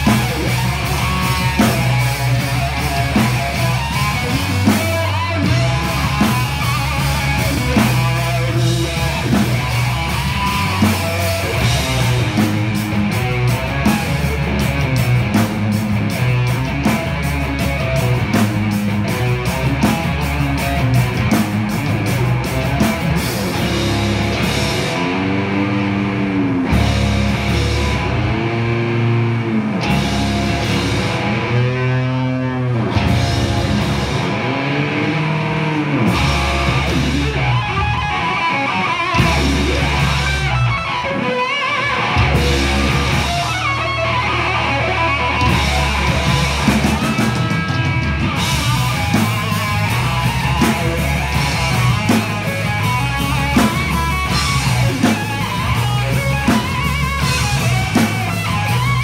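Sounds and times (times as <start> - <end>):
bass guitar: 0.0 - 59.0
distorted electric guitars: 0.0 - 59.0
drum kit: 0.0 - 59.0.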